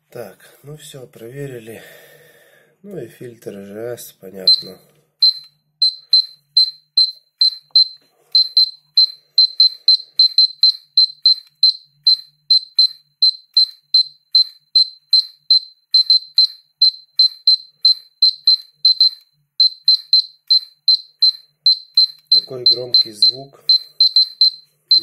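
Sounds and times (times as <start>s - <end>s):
dosimeter high-pitched beeps: 4.4s - 25.0s.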